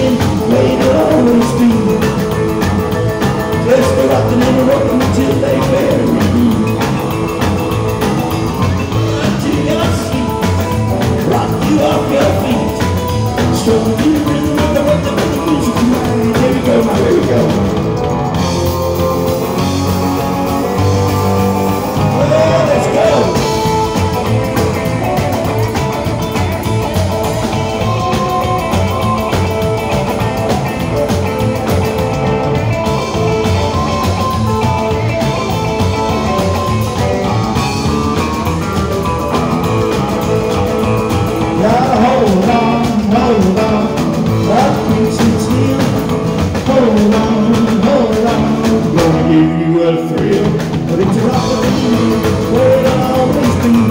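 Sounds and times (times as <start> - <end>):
rock band playing: 0.0 - 53.9
electric guitar solo with bent notes: 16.0 - 43.0.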